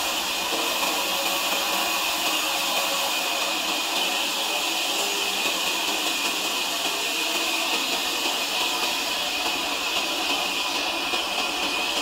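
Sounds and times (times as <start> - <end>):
sawmill saw hissing: 0.0 - 12.0.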